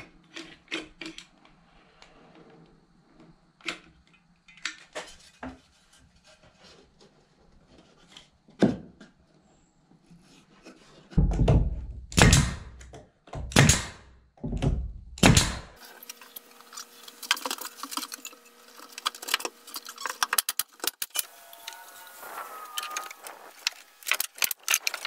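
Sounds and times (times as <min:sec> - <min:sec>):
short wavering whine: 0:21.2 - 0:24.2.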